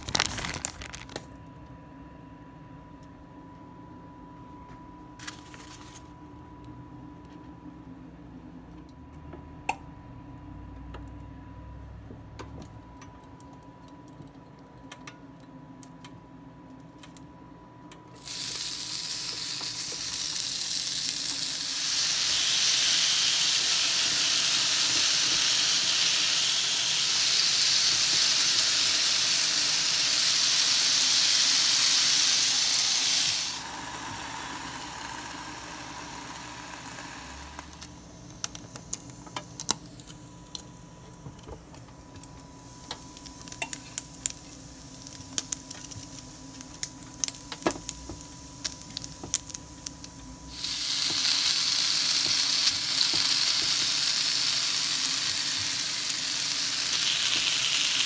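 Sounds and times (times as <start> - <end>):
bacon sizzling on a grill: 18.2 - 37.6, 43.0 - 58.0.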